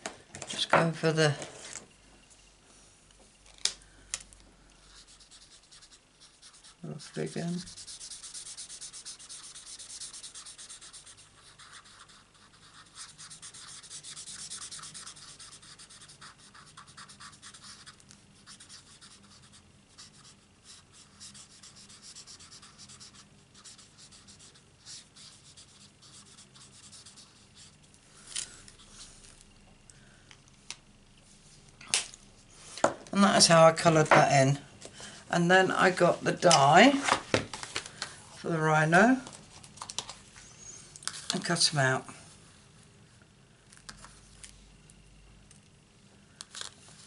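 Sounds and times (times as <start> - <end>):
marker scratching on cardstock: 4.9 - 27.8.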